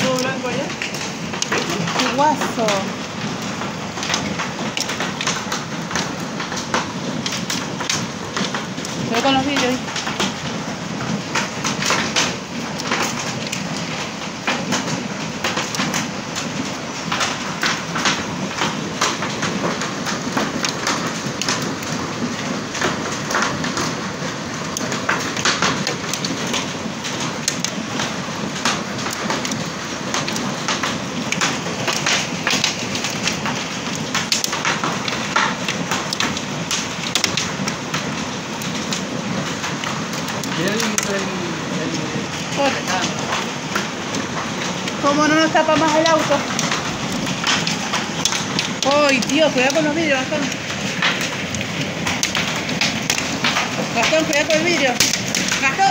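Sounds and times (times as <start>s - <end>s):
hailstones pelting hard surfaces: 0.0s - 55.9s.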